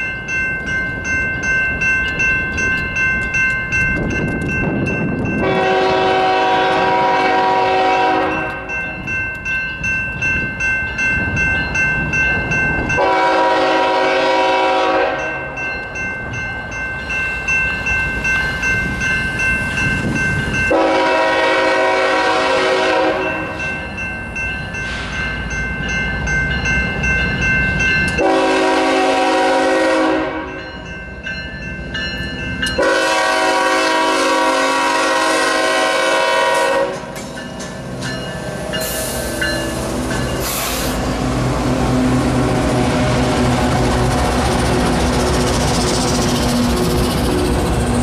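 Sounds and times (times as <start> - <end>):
locomotive air horn blasts: 5.4 - 8.7, 13.0 - 15.4, 20.7 - 23.6, 28.2 - 30.6, 32.8 - 37.2.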